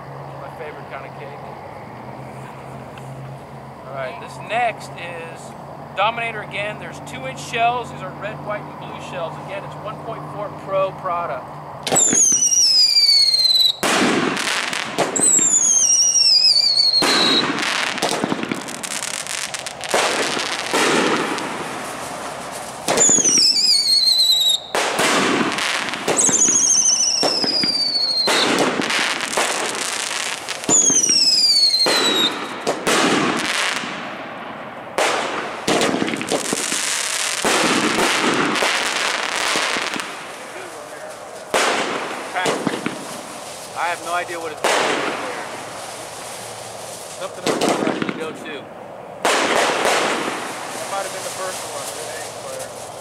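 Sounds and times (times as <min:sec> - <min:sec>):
firework bursting bang: 0:11.8 - 0:48.6, 0:49.2 - 0:53.0
firework whistle falling in pitch: 0:11.9 - 0:13.8, 0:15.2 - 0:17.6, 0:26.1 - 0:28.5.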